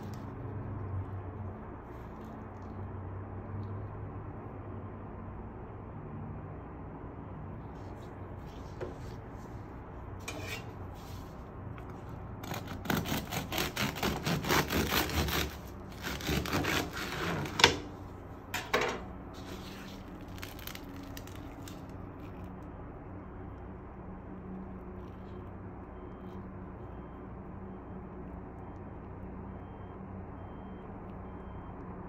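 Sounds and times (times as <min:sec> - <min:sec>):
bread knife sawing through crust: 0:12.4 - 0:17.9.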